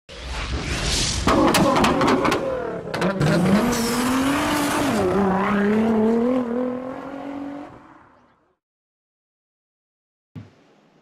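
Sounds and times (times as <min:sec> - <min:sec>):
car engine revving: 0:01.3 - 0:07.8.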